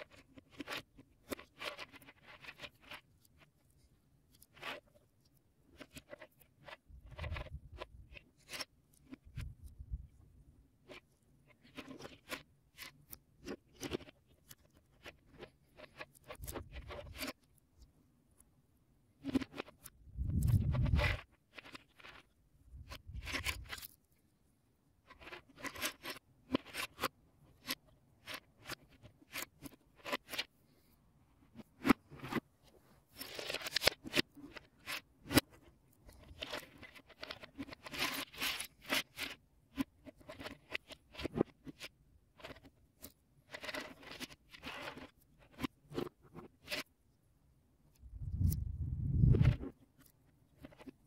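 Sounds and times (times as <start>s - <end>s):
plastic parts scraping rattle: 5.6s - 10.0s, 10.9s - 17.4s, 19.2s - 24.1s, 25.0s - 30.5s, 33.1s - 46.9s.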